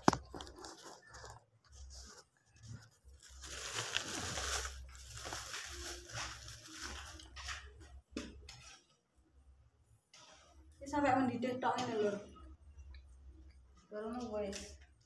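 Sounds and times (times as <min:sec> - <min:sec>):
rustling and scraping handling noise: 0:00.0 - 0:09.2.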